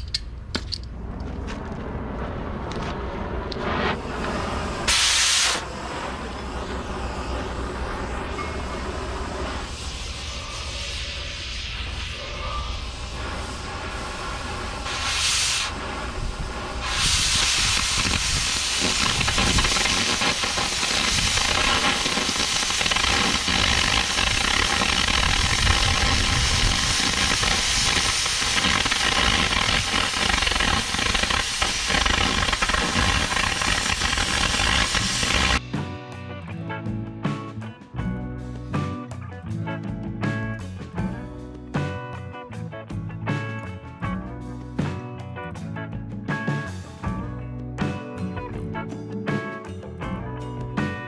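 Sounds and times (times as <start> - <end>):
cutting torch hissing: 3.6 - 35.6.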